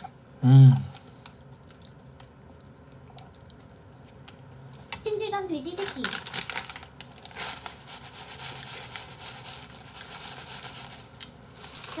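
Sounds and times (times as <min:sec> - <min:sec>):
plastic packet crinkling: 0:05.7 - 0:07.9, 0:11.2 - 0:12.0.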